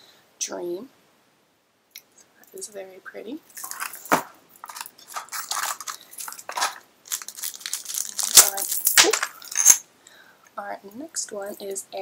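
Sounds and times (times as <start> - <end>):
packaging crinkling and tearing: 3.6 - 9.7.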